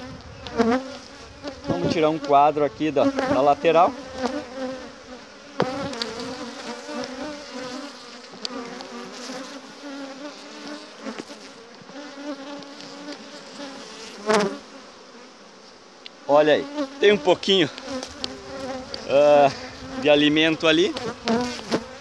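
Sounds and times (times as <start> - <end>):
bees buzzing: 0.0 - 22.0
hive tool clicks: 5.6 - 7.3, 8.2 - 9.0, 12.5 - 13.3, 17.7 - 19.1, 20.9 - 21.8.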